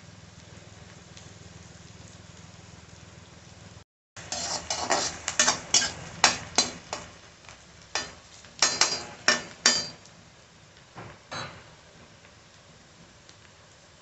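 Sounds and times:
metal spatula scraping a pan: 4.2s - 7.1s, 8.0s - 10.0s.

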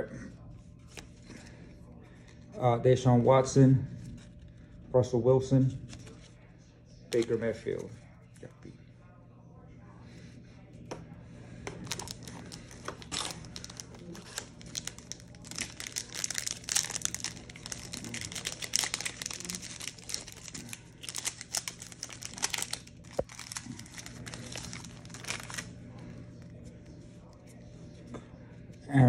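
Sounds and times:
plastic wrapper crinkling: 11.7s - 26.0s.

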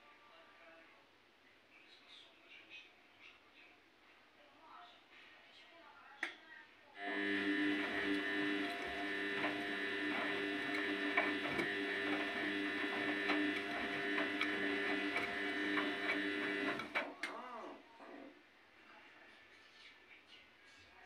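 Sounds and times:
washing machine motor whine: 7.0s - 17.7s.

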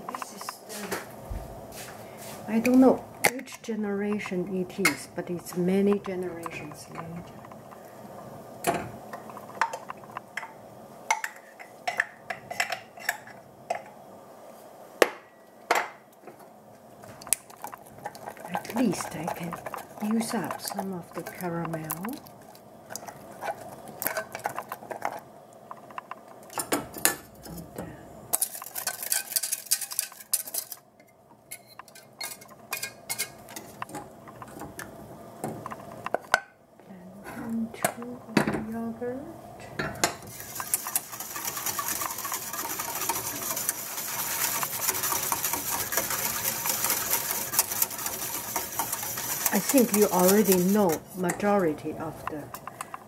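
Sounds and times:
whisk clinking on saucepan: 40.0s - 51.5s
milk pouring: 40.4s - 50.3s.

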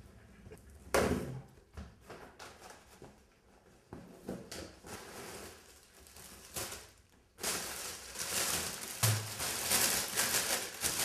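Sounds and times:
plastic bags rustling: 4.9s - 11.0s.

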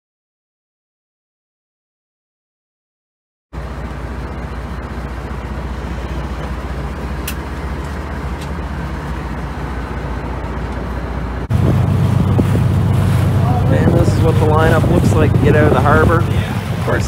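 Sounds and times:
boat engine running: 3.6s - 17.0s.

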